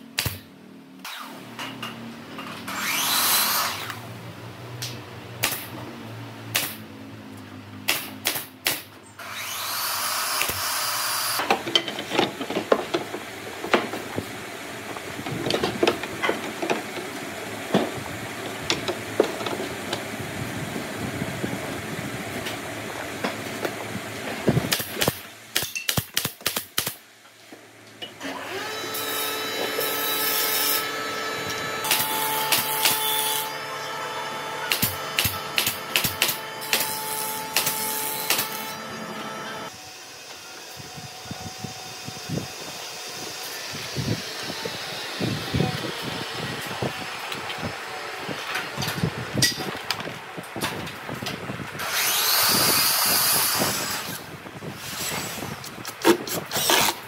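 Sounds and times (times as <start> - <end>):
steady motor hum: 28.2 - 55.8.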